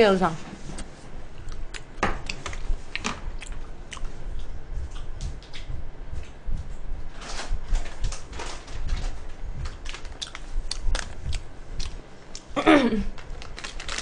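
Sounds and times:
chewing clicks and crunches: 0.8s - 6.4s, 9.6s - 12.5s, 13.3s - 14.0s.

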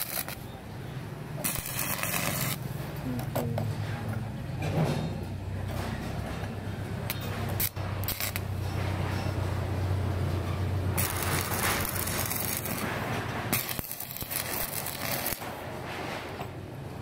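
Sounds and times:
welding arc crackling: 0.0s - 0.6s, 1.3s - 2.9s, 7.1s - 9.0s, 10.8s - 15.9s.

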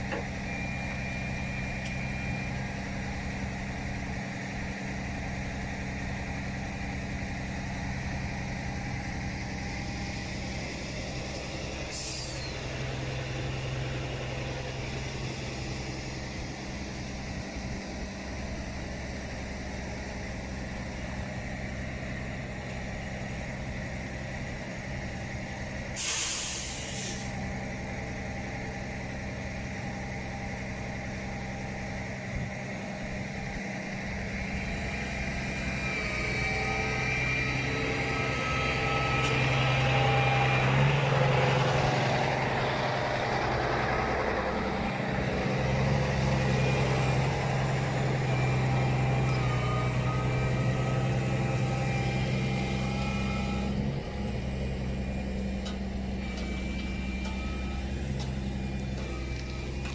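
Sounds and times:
steady whine: 0.0s - 59.9s
truck diesel engine running: 0.0s - 59.9s
burst of hiss: 26.0s - 27.3s.

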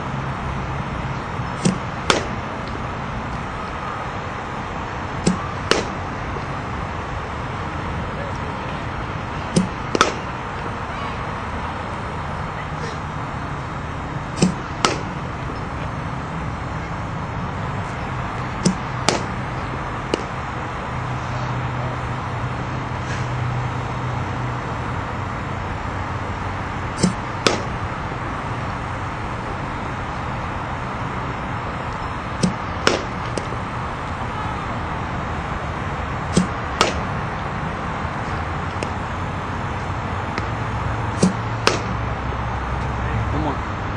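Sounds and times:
steady background noise: 0.0s - 43.9s
bat cracking ball: 1.1s - 3.8s, 5.0s - 6.8s, 9.4s - 10.6s, 14.2s - 15.9s, 17.4s - 20.6s, 26.9s - 28.4s, 31.9s - 35.2s, 36.2s - 42.4s.

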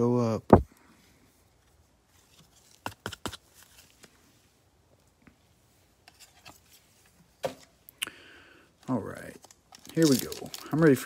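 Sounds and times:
plastic card sleeves clicking and rustling: 2.2s - 4.1s, 9.2s - 11.0s.

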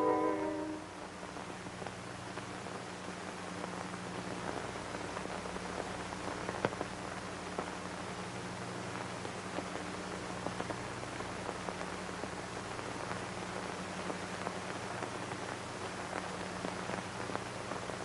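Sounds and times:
music: 0.0s - 1.1s
low hum: 0.0s - 1.4s
recording hiss: 0.0s - 18.0s
vinyl crackles and clicks: 0.0s - 18.0s.

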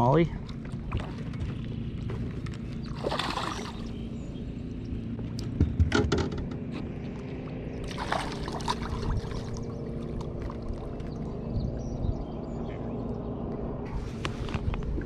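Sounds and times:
steady low hum: 0.0s - 15.0s
fish splashing in water: 2.8s - 4.1s, 7.8s - 11.0s.

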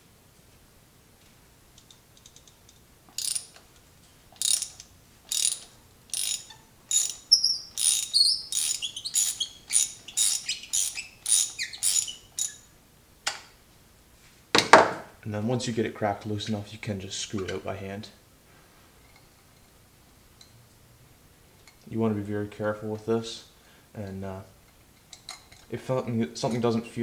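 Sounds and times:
ratchet clicking: 1.8s - 3.8s, 4.4s - 12.6s.

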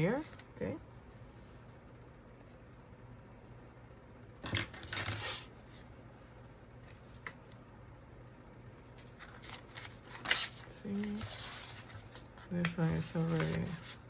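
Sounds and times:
paper booklet rustling: 8.8s - 14.0s.

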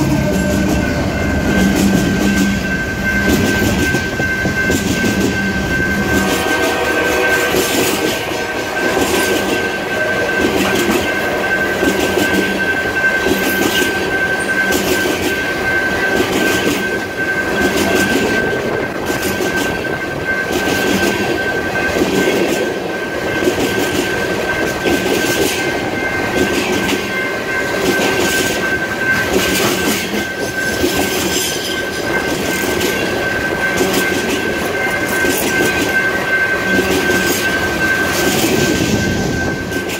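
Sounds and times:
high-pitched ring: 0.0s - 39.9s
steel wheels rumbling on rail: 0.0s - 39.9s
wheels clickety-clack over rail joints: 0.0s - 39.9s.

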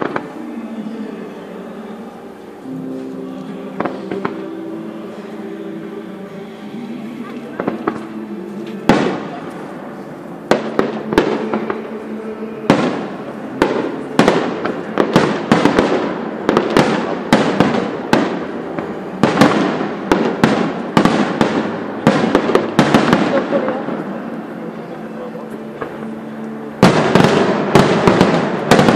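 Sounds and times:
fireworks bangs: 0.0s - 1.0s, 7.2s - 28.9s.

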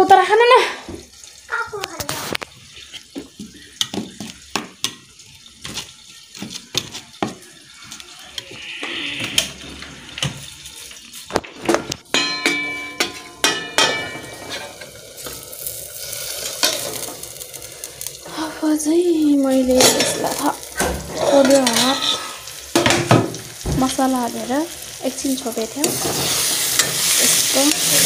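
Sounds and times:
steel cookware clanking: 11.4s - 17.6s, 19.5s - 28.0s.

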